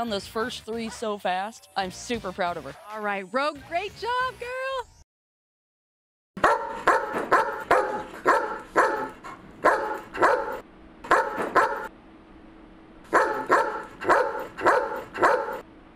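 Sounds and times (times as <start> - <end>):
dog barking: 6.4 - 11.9, 13.1 - 15.6.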